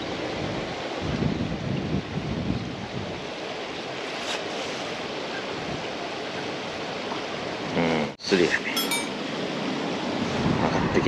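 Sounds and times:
wind blowing across microphone: 0.2s - 3.3s, 10.2s - 11.0s.

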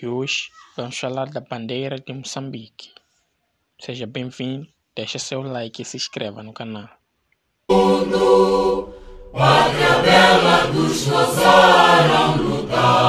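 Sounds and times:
choral singing: 7.7s - 13.0s.

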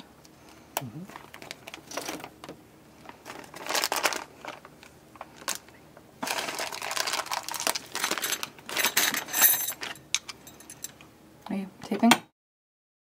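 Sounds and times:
plastic packaging crinkling: 1.1s - 10.0s.

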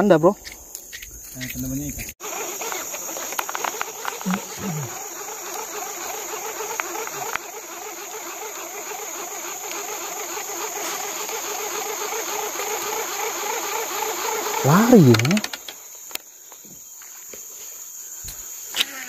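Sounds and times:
fast pulsing insect chorus: 0.0s - 19.0s
high-pitched insect buzzing: 0.0s - 19.0s
sharp clicks: 0.4s - 2.2s, 14.8s - 16.2s.

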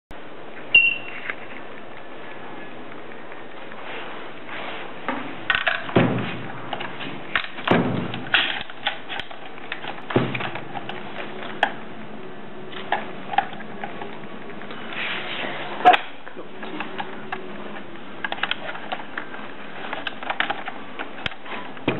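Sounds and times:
tape dispenser clicks and knocks: 5.5s - 11.8s.

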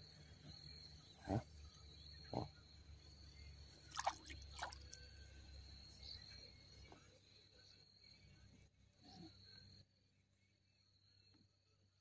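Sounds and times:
small plops on water: 3.9s - 5.0s.

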